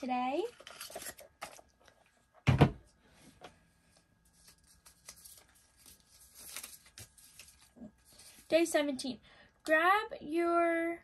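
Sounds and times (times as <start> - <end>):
paper rustling: 4.0 - 8.5.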